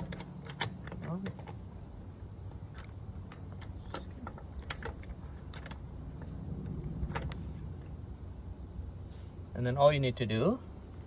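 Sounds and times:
metal tool clicks and clinks: 0:00.0 - 0:01.7
low steady rumble: 0:00.0 - 0:11.0.

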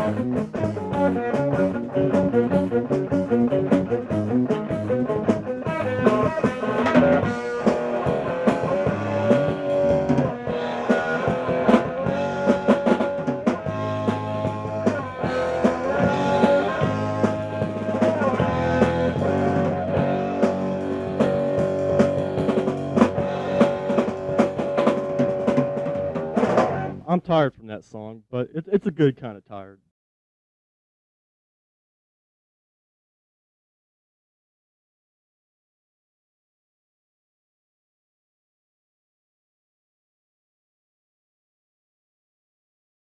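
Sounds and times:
electric guitar notes: 0:00.0 - 0:27.0
drum kit hits: 0:06.1 - 0:26.9.

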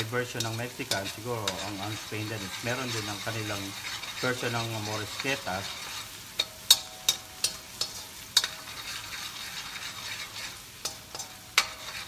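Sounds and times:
garlic sizzling in oil: 0:00.0 - 0:12.0
metal spatula clanking on wok: 0:06.4 - 0:12.0.

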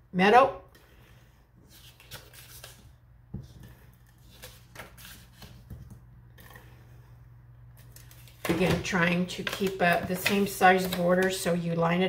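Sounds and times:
paper rustling: 0:01.7 - 0:05.7.

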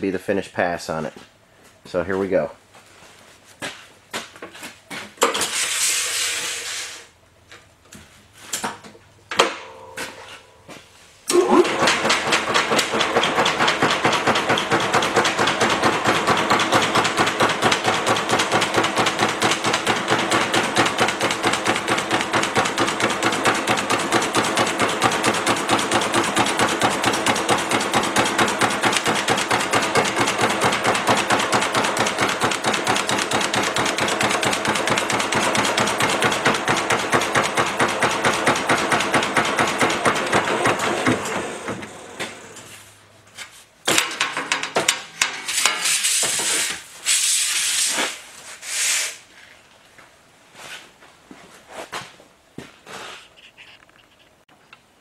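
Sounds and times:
machine hammering sheet steel: 0:11.6 - 0:42.8, 0:43.9 - 0:48.2.

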